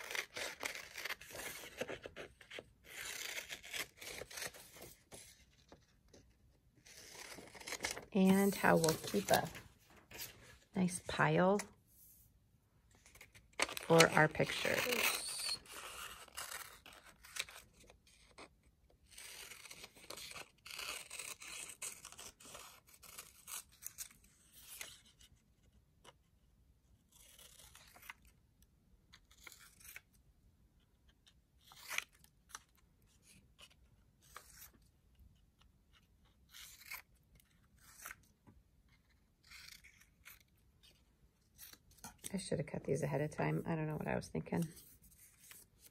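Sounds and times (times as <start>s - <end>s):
scissors snipping paper: 0.0s - 5.0s, 13.0s - 18.5s, 19.1s - 25.0s, 39.3s - 42.5s
paper rustling: 0.0s - 10.7s.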